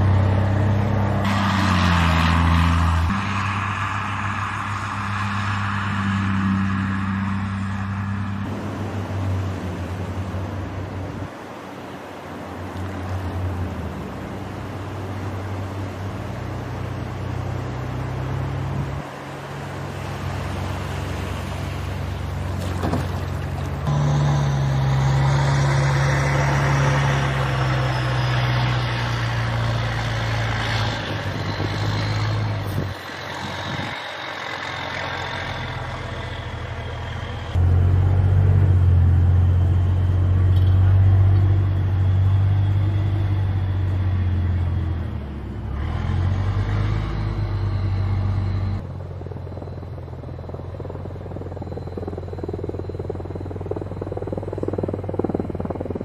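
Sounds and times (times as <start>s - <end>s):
armoured vehicle diesel engine drone: 0.0s - 56.0s
faint high whine: 46.2s - 56.0s.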